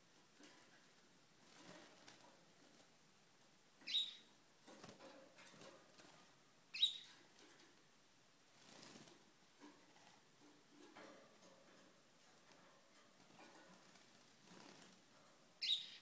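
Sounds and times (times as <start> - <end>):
wing fluttering and rustling: 0.2 - 3.0, 4.6 - 6.4, 8.5 - 15.4
canary chirps: 3.8 - 4.4, 6.7 - 7.2, 15.6 - 16.0.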